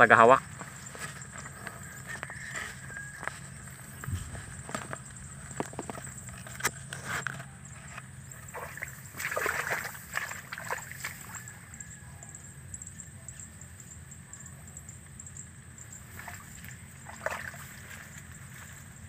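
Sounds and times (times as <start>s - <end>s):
steady low hum: 0.4s - 19.0s
splashing through water: 8.3s - 11.5s, 16.1s - 18.3s.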